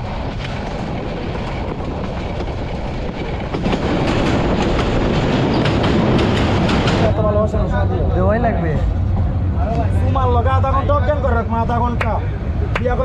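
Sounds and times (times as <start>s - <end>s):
train wheels clattering on rails: 0.0s - 7.7s.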